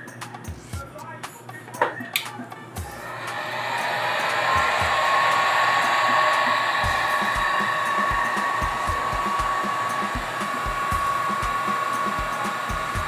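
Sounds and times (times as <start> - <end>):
heat gun blowing air: 2.9 - 13.0.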